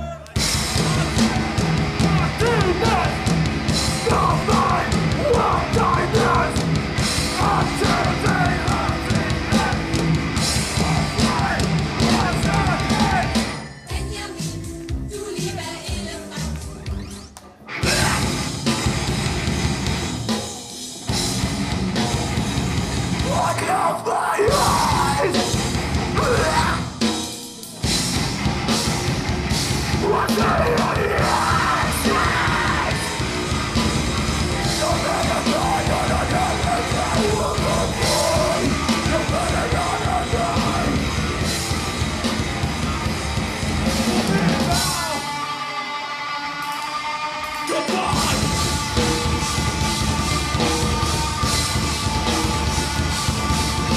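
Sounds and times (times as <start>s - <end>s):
live heavy metal band: 0.0s - 14.1s, 17.7s - 53.9s
electric guitar playing alone: 0.4s - 13.6s, 27.8s - 53.9s.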